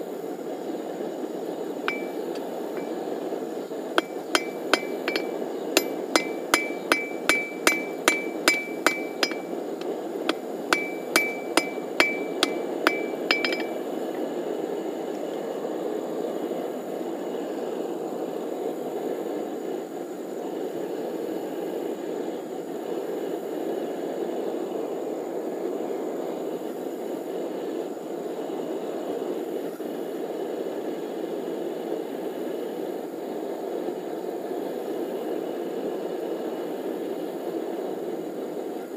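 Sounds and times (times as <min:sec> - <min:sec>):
hammer blows on anvil: 0:01.9 - 0:03.0, 0:04.0 - 0:09.6, 0:10.3 - 0:13.8.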